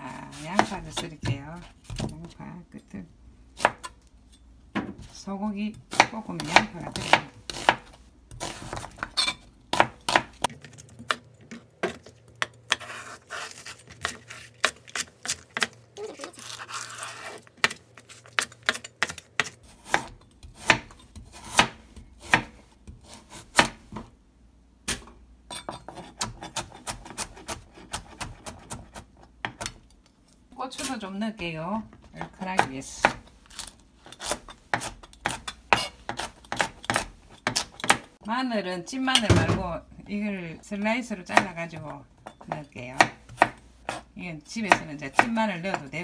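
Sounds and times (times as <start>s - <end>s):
knife chopping on cutting board: 5.9s - 9.1s, 18.4s - 24.1s, 25.9s - 29.8s, 34.2s - 38.1s.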